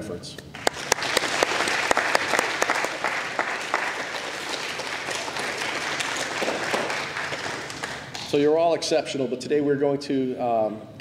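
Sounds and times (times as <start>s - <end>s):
audience applauding: 0.6s - 8.8s.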